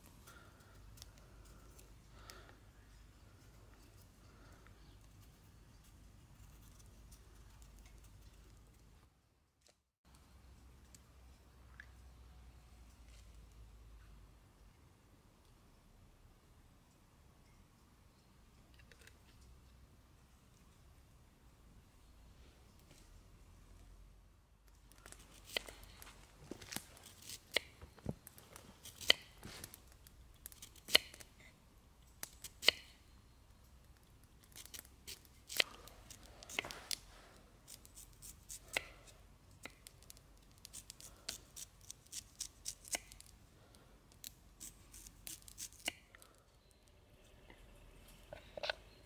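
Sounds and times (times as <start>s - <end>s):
knife slicing potato: 28.8s - 29.7s.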